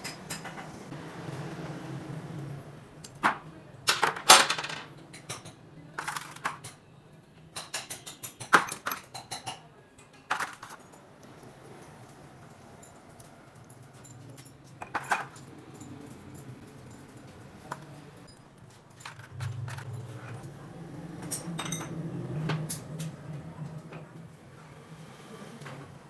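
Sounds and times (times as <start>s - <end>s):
metal parts clinking: 18.2s - 19.9s
low steady hum: 19.2s - 24.6s.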